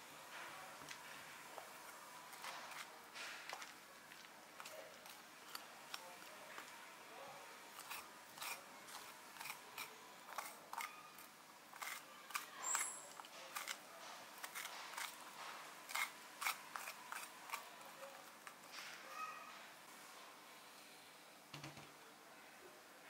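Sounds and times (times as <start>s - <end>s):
spoon scraping pumpkin: 1.6s - 6.8s, 7.5s - 18.7s
high squeak: 12.5s - 13.2s.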